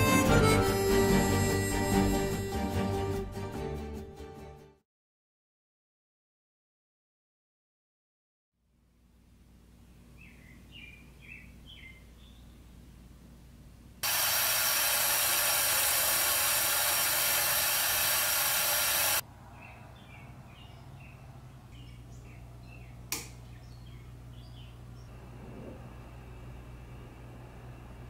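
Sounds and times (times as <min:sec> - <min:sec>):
birds chirping: 0:10.1 - 0:12.8, 0:19.5 - 0:25.1
faucet running water: 0:14.0 - 0:19.2.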